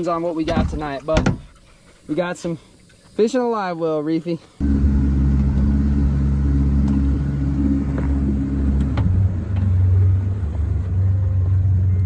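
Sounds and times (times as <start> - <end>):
outboard motor humming: 4.6 - 11.9.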